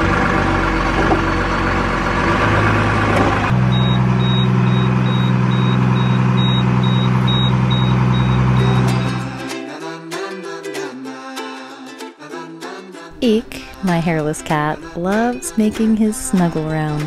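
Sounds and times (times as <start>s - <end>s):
diesel engine droning: 0.0s - 9.5s
high alarm beeping: 3.7s - 9.3s.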